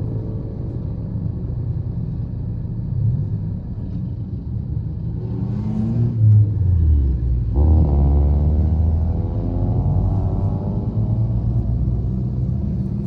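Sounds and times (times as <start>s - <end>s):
traffic engine rumble: 0.0s - 13.0s
engine revving up: 7.5s - 11.4s.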